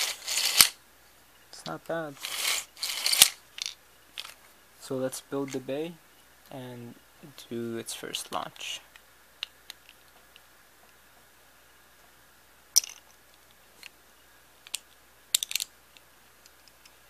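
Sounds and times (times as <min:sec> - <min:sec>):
plastic toy parts clicking: 0:00.0 - 0:00.8, 0:02.2 - 0:04.4, 0:14.6 - 0:17.0.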